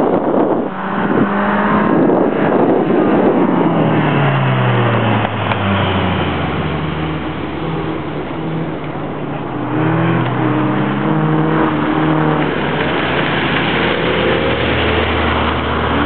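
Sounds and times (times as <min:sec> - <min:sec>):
car engine revving: 0:00.0 - 0:16.0
wind buffeting microphone: 0:00.0 - 0:16.0.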